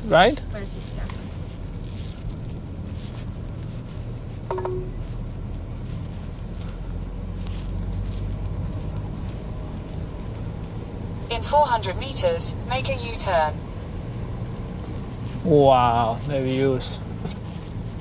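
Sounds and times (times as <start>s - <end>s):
car engine and road noise: 0.0s - 18.0s.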